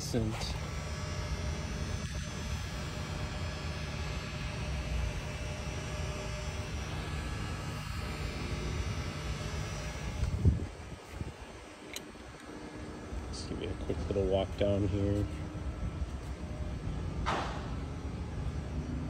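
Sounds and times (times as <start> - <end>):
faint steady whine: 0.0 - 19.0.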